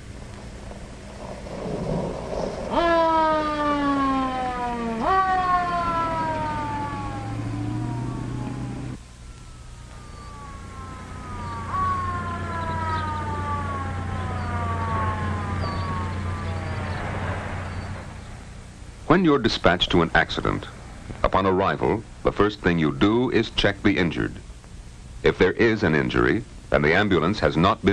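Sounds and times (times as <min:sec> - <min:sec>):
low steady hum: 0:00.0 - 0:27.9
police siren wailing: 0:02.6 - 0:18.2.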